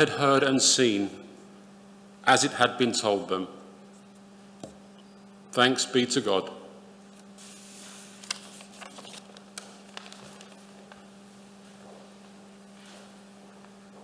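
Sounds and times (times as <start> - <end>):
low electrical hum: 0.0 - 14.0
footsteps walking: 11.6 - 14.0.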